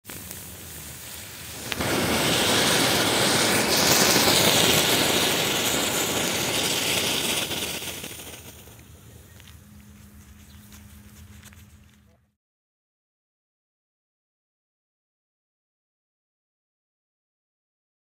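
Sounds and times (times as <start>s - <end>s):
firework fountain hissing: 0.0s - 9.8s.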